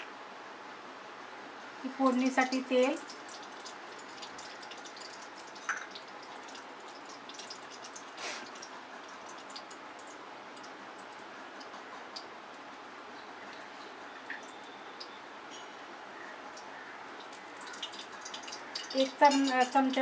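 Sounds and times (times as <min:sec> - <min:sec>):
oil crackling and hissing: 0:02.0 - 0:12.3, 0:16.5 - 0:20.0.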